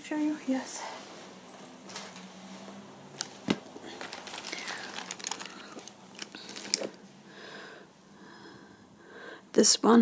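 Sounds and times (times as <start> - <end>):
hands rummaging: 3.1 - 7.2.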